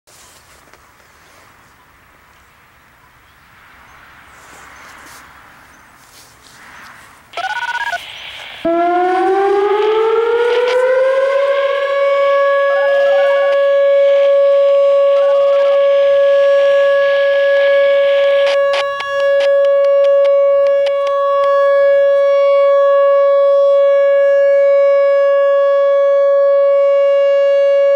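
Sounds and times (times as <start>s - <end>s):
outdoor warning siren: 7.3s - 27.9s.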